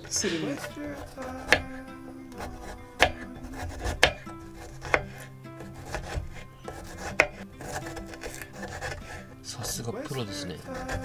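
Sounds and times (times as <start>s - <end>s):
knife cutting and scraping: 0.0s - 11.0s
knife knocking on wooden board: 3.8s - 5.2s, 5.9s - 7.4s.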